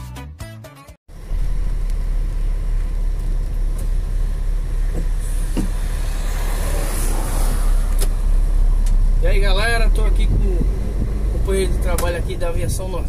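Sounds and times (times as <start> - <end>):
coach engine rumble: 1.1 - 13.0.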